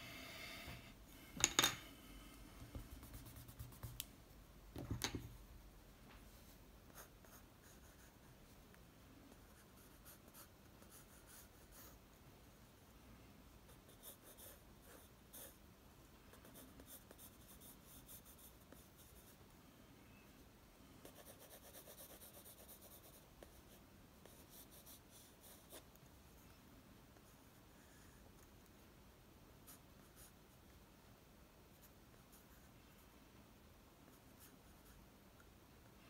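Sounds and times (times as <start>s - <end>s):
pencil scratching on paper: 2.8s - 4.0s, 9.4s - 12.0s, 13.7s - 15.6s, 16.3s - 19.3s, 21.0s - 25.9s.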